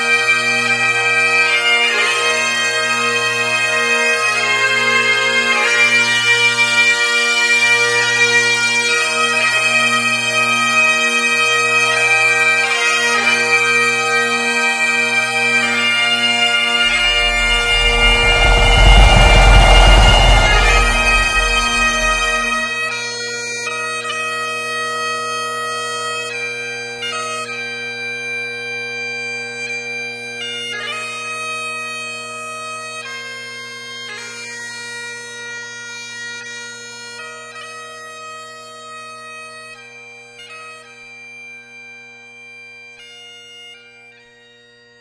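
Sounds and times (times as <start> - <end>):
bagpipes playing over drones: 11.3 - 22.7.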